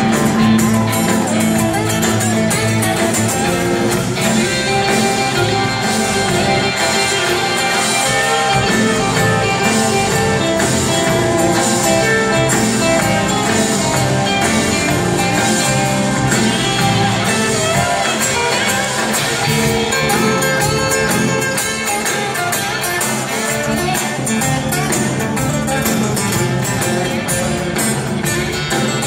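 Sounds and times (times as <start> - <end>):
drums: 0.0 - 29.0.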